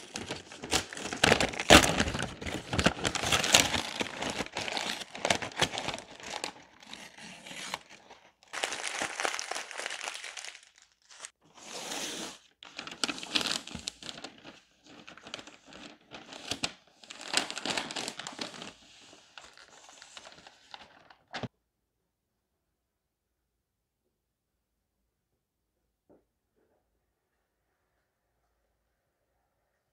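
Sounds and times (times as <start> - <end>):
paper crinkling and tearing: 0.0 - 11.4, 12.0 - 21.5.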